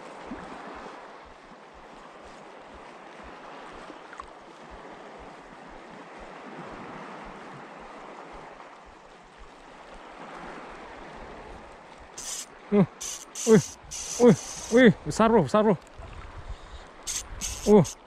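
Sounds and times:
wind buffeting microphone: 0:15.9 - 0:17.6.

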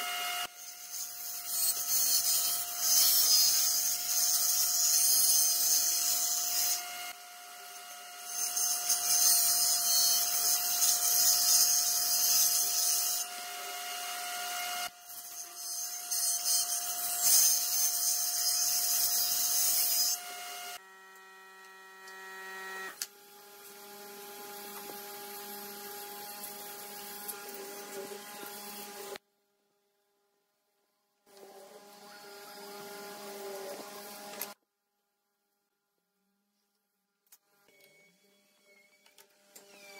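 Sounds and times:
table saw blade cutting wood: 0:00.0 - 0:29.2, 0:31.3 - 0:34.6
saw motor whine: 0:19.9 - 0:29.2.

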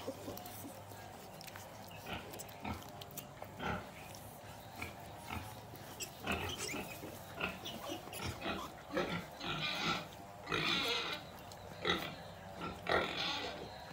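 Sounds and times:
pigs grunting: 0:00.0 - 0:13.9
high piglet squeals: 0:05.9 - 0:09.0, 0:13.0 - 0:13.7.

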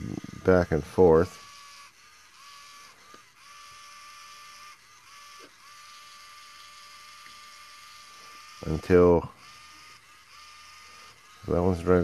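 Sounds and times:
small gear motors whining: 0:00.0 - 0:12.0.

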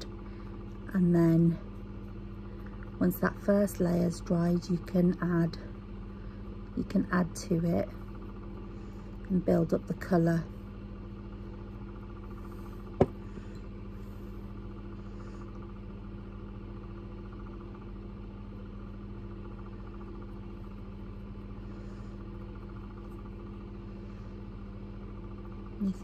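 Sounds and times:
low hum: 0:00.0 - 0:26.0.

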